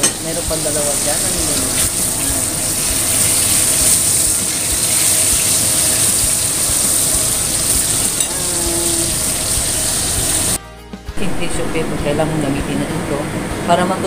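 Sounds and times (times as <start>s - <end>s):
chicken deep-frying in oil: 0.0s - 10.6s.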